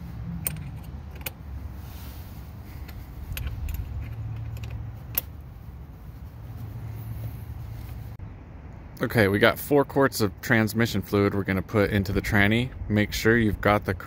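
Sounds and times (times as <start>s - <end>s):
steady low rumble: 0.0s - 9.5s
wrench clinking on metal bolt: 0.4s - 1.4s, 2.8s - 5.3s.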